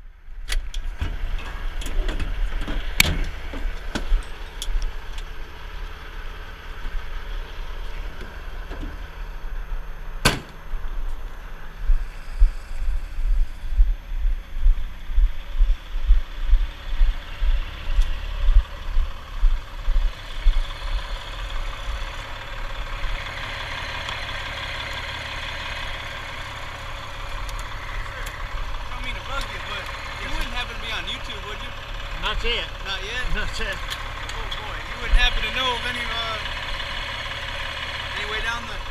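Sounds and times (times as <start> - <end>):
diesel truck engine idling: 0.0 - 38.9
sharp knock: 10.2 - 10.6
low thumps: 10.2 - 20.6.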